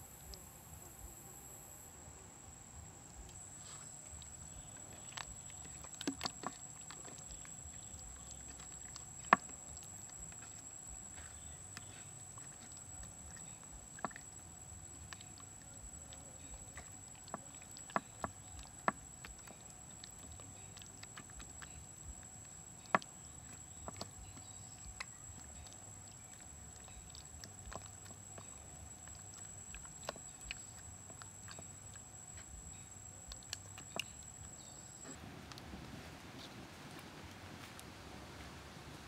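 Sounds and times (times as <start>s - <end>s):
steady high-pitched whine: 0.0s - 4.7s
hands squelching marinade into meat: 3.3s - 35.7s.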